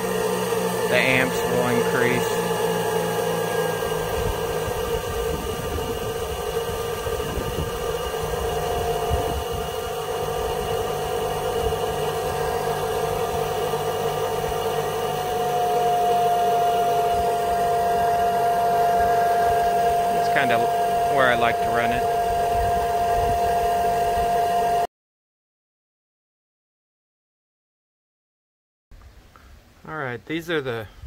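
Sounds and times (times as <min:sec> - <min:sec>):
high whine: 0:00.0 - 0:24.8
turbine and alternator humming: 0:00.0 - 0:24.9.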